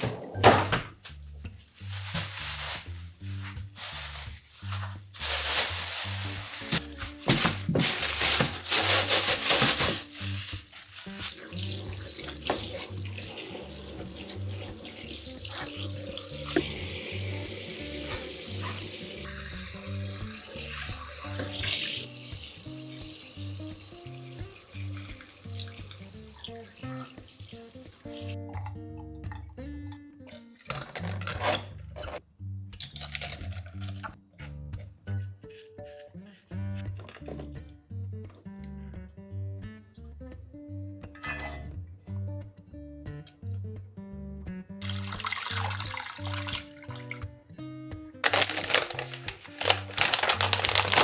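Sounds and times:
background music: 0:00.0 - 0:51.0
plastic bag rustling: 0:01.6 - 0:19.4, 0:48.2 - 0:51.0.

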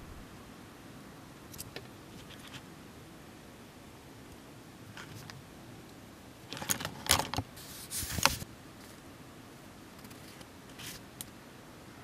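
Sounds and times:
plastic parts clicking and rattling: 0:06.5 - 0:07.4.

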